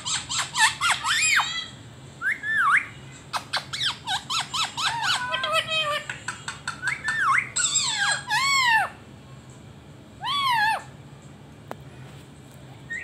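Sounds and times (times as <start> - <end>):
parakeet squawking: 0.0 - 9.0, 10.2 - 10.9.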